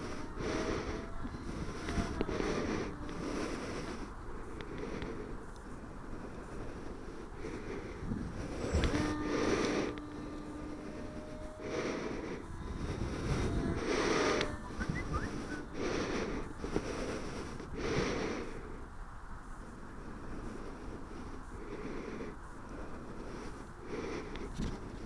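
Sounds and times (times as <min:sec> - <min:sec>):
wind puffs hitting microphone: 0:00.0 - 0:18.6, 0:24.4 - 0:25.0
model airplane whine overhead: 0:00.0 - 0:25.0.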